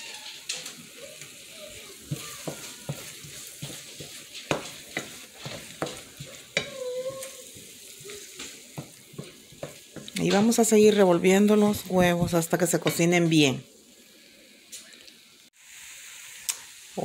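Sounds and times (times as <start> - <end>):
food sizzling in frying pan: 0.0 - 17.0
wooden spoon scraping pan: 1.7 - 13.3.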